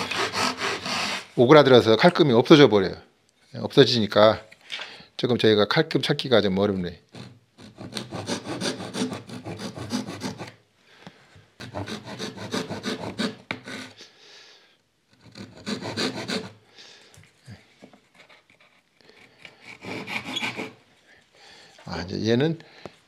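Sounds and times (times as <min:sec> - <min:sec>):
hand saw cutting wood: 0:00.0 - 0:01.4, 0:07.1 - 0:10.6, 0:11.6 - 0:14.0, 0:15.2 - 0:16.6, 0:18.1 - 0:20.8.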